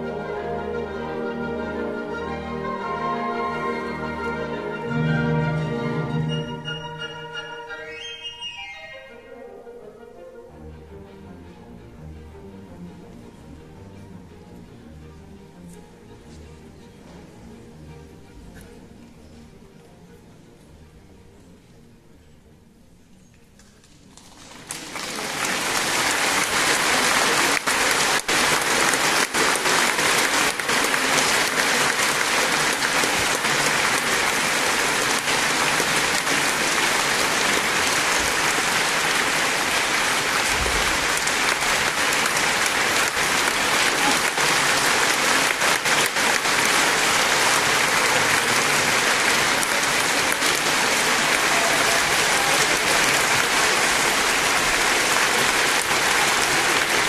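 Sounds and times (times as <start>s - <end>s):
audience applauding: 23.6s - 57.0s.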